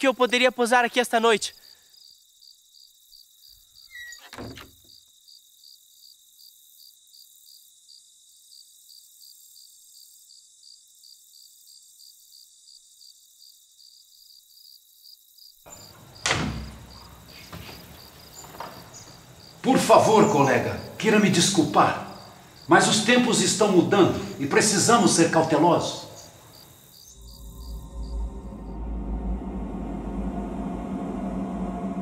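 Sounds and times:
crickets chirping: 0.0s - 31.8s
wooden door unlatched and opened: 3.9s - 4.9s, 15.7s - 20.0s
thunk: 4.3s - 4.7s.

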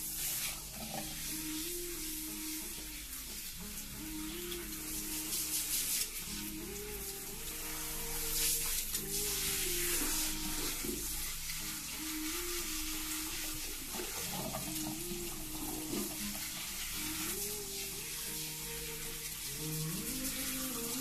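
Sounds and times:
hands working through wet hair: 0.0s - 21.0s
soft music: 0.0s - 21.0s
water spraying onto hair: 0.0s - 21.0s.

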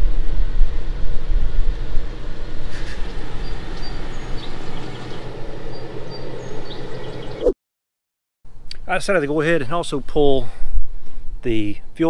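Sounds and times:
truck engine rumble: 0.0s - 7.5s
birds chirping: 1.7s - 7.6s.

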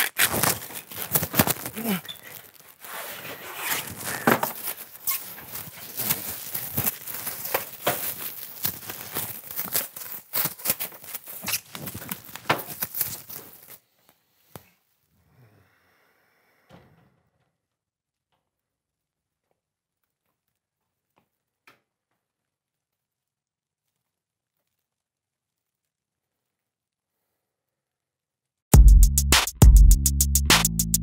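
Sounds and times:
plastic sheeting crinkling and tearing: 0.0s - 13.9s.

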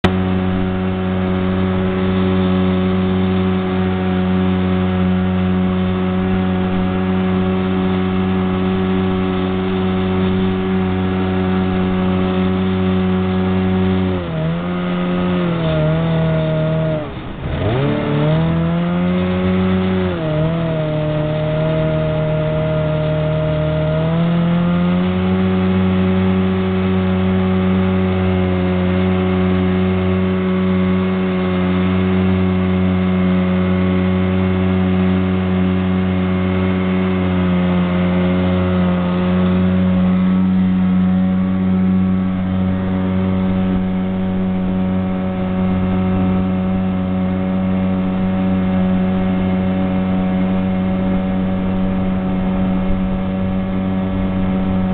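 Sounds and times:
jet boat engine running: 0.0s - 54.9s.

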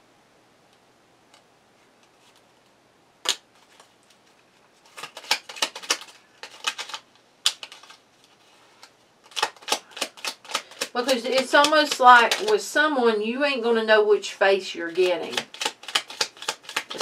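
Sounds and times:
card snapping: 3.2s - 3.5s, 4.9s - 8.0s, 9.3s - 12.6s, 15.2s - 17.0s
cards clicking while shuffled: 4.8s - 12.6s, 14.9s - 17.0s.

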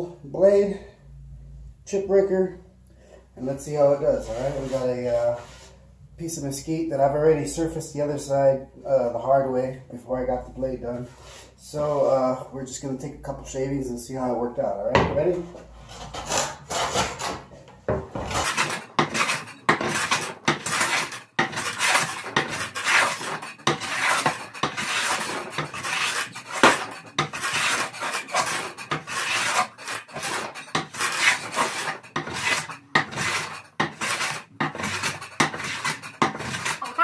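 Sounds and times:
hand plane cutting wood: 15.7s - 17.5s, 18.1s - 37.0s.

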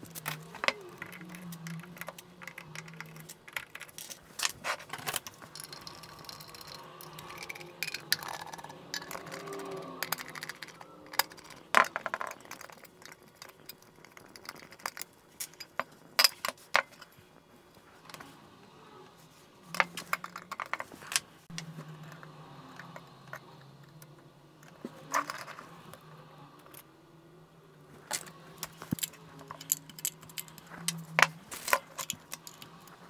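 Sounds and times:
low steady hum: 0.0s - 33.0s.

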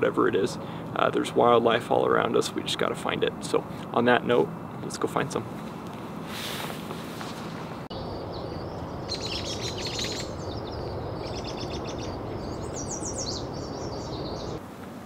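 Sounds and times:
songbirds chirping and trilling: 7.9s - 14.6s.

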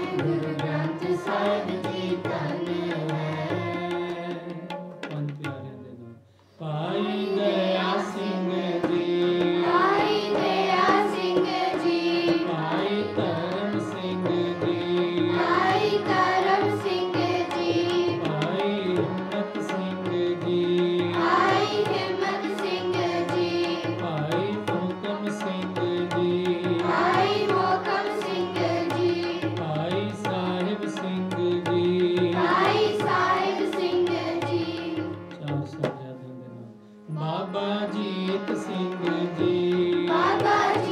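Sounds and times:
voices singing a hymn: 0.0s - 4.1s, 6.6s - 24.6s, 26.7s - 29.6s, 32.2s - 35.1s, 37.2s - 40.9s
tabla drumming: 0.0s - 5.9s, 7.0s - 36.2s, 37.2s - 40.9s
harmonium chords: 0.0s - 40.9s.

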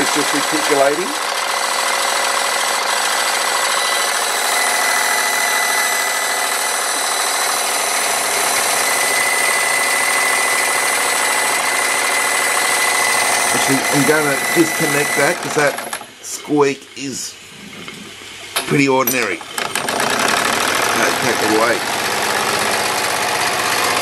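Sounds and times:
model steam engine whirring: 0.0s - 16.1s, 18.1s - 24.0s
high squeak from generator: 3.7s - 15.7s.

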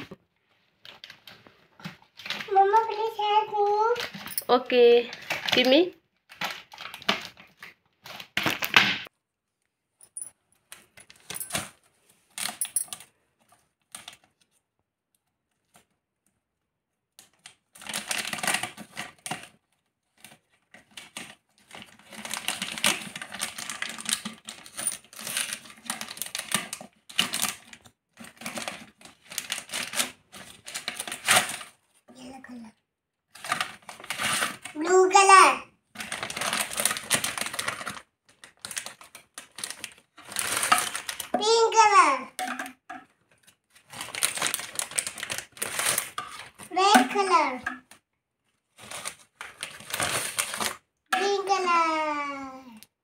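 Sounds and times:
plastic packaging crinkling: 0.6s - 8.8s, 17.2s - 32.0s, 33.3s - 35.1s, 35.8s - 41.7s, 43.0s - 47.0s, 47.8s - 50.9s
plastic tubes knocking: 42.4s - 43.1s.

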